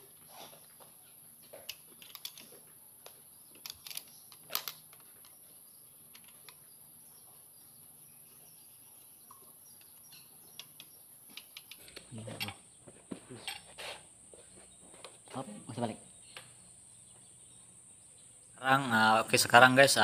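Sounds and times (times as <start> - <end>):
metallic clicks of tools: 1.6 - 2.5, 3.6 - 5.4, 9.8 - 12.6.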